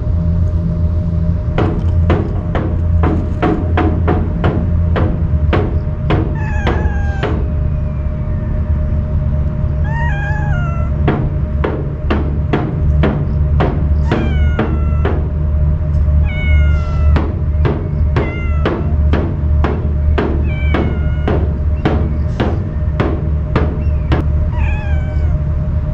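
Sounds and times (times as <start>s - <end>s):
cat meowing: 6.1s - 8.8s, 9.7s - 11.3s, 13.6s - 22.3s, 23.8s - 25.5s.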